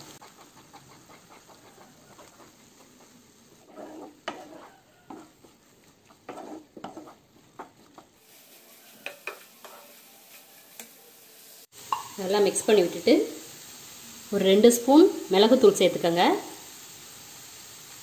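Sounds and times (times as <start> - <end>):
spatula scraping frying pan: 0.0 - 11.0
faint sizzle: 0.0 - 18.0.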